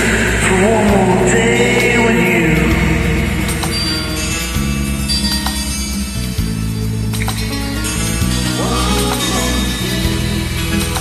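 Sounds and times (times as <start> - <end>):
person singing: 0.0 - 3.3, 8.4 - 11.0
karaoke backing track: 0.0 - 11.0.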